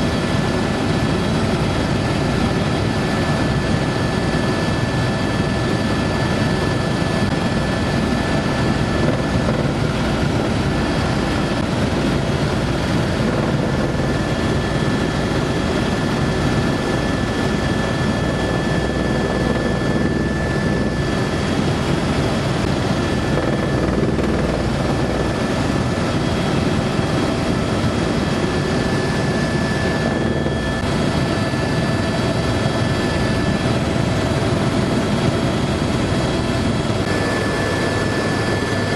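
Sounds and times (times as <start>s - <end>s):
helicopter cabin drone: 0.0s - 38.9s
high whine: 7.2s - 35.7s.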